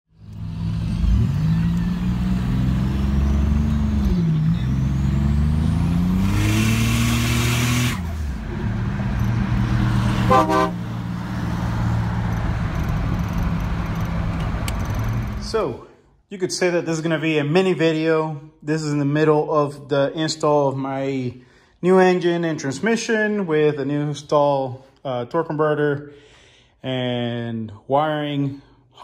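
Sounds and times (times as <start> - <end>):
car engine accelerating hard: 0.2 - 15.5
car horn blast: 10.1 - 11.0.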